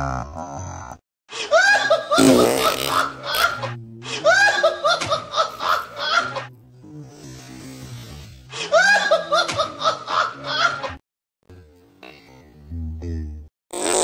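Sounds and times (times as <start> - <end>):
person laughing: 1.6 - 6.5.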